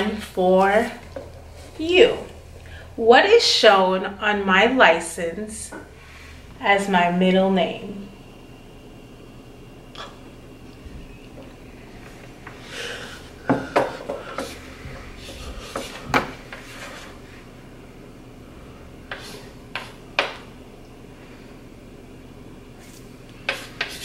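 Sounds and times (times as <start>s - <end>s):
marker scratching on board: 15.2s - 17.1s, 23.5s - 24.0s.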